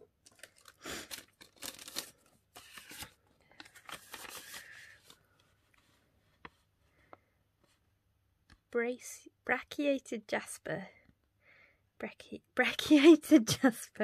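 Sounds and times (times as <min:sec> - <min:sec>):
paper rustling and crinkling: 0:00.2 - 0:06.6.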